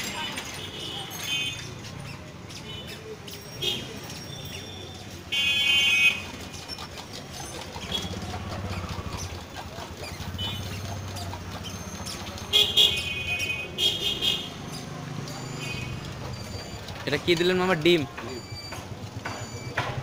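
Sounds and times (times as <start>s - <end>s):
traffic rumble: 0.0s - 20.0s
vehicle horn honking: 5.3s - 6.2s.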